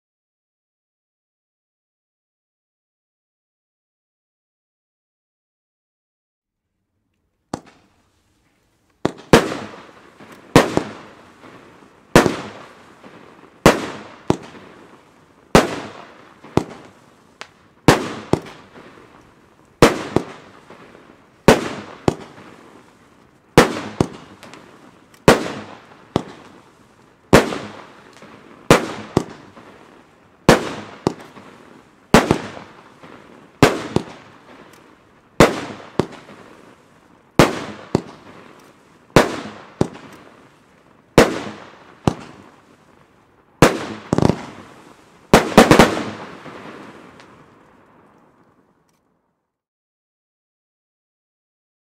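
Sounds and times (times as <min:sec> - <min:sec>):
small firework pop: 0:07.5 - 0:07.9
fireworks bangs: 0:07.5 - 0:08.0, 0:09.0 - 0:48.4.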